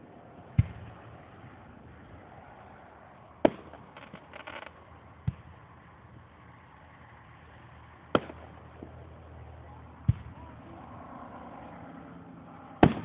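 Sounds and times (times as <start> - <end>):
firework shells bursting: 3.4 - 4.8.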